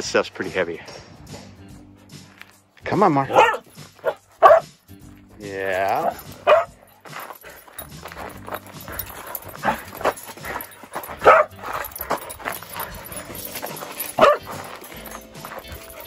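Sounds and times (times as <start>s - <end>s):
dog barking: 3.3s - 4.7s, 6.0s - 6.8s, 8.8s - 16.0s.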